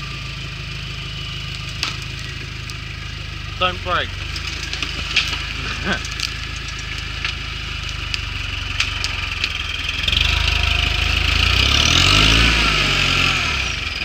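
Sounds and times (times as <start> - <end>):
truck engine revving: 0.0 - 14.0.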